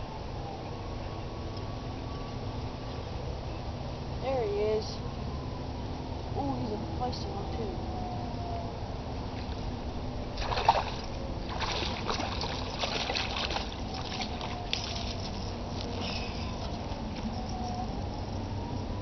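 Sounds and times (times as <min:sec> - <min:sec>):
low background rumble: 0:00.0 - 0:19.0
fish splashing at water surface: 0:10.4 - 0:15.2.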